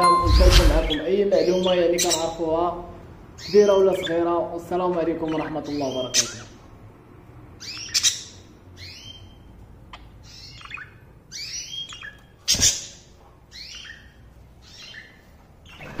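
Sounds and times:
budgerigar chirping: 0:00.9 - 0:02.4, 0:05.3 - 0:06.6, 0:07.6 - 0:16.0.

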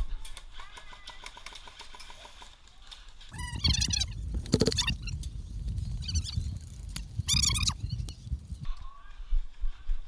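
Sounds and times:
wind rumble on microphone: 0:03.3 - 0:08.8.

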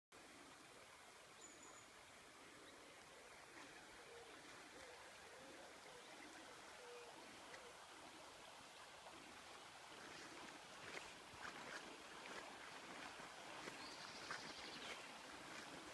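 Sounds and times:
river water flowing: 0:00.2 - 0:15.9.

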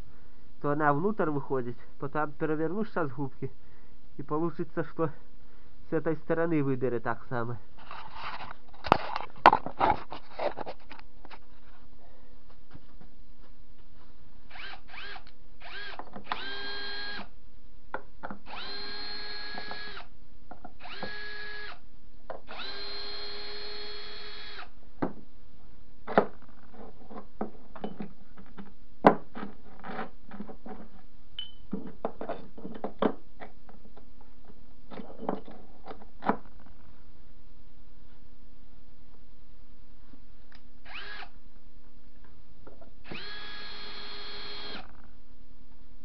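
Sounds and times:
power tool motor running: 0:14.5 - 0:17.3, 0:18.5 - 0:20.0, 0:20.8 - 0:21.8, 0:22.5 - 0:24.6, 0:40.9 - 0:41.3, 0:43.1 - 0:44.9.

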